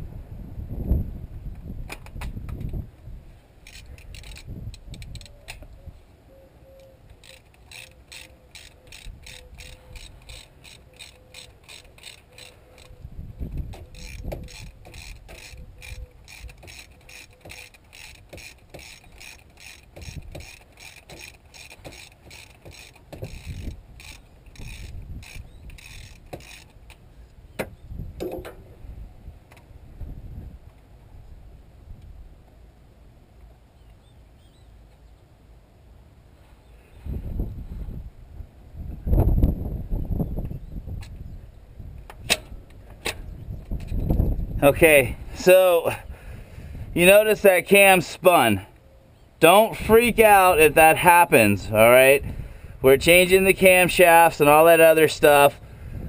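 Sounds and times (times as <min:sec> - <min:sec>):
ratchet wrench clicking: 0:03.6 - 0:05.3, 0:07.1 - 0:13.0, 0:13.7 - 0:26.9
low knocks of tools: 0:27.6 - 0:28.8.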